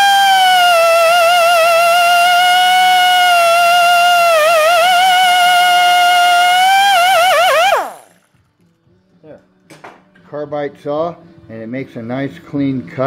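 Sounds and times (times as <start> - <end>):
cut-off saw whining: 0.0 - 8.3.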